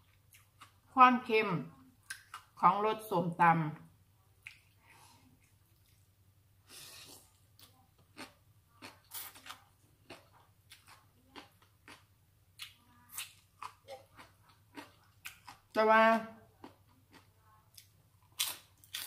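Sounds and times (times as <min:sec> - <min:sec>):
wet chewing and lip smacks: 0:04.4 - 0:04.8, 0:05.4 - 0:06.0.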